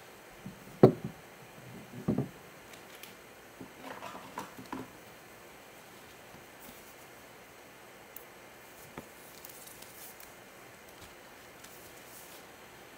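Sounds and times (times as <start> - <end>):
plastic sleeve rustling: 8.8 - 12.5.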